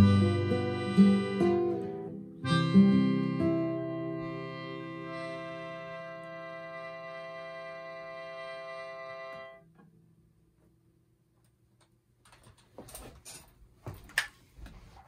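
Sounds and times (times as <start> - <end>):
melodica note: 0.0 - 9.7.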